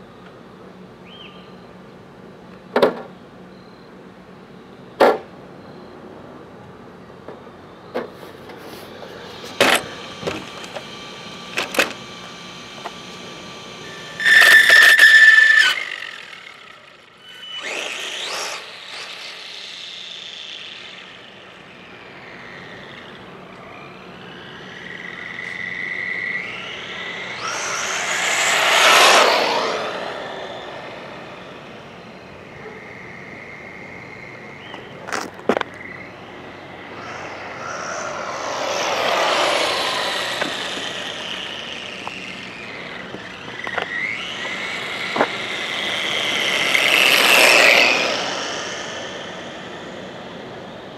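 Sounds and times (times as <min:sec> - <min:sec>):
rc truck motor whine: 0:07.6 - 0:50.9
tyre noise on asphalt: 0:08.0 - 0:21.4, 0:34.6 - 0:50.4.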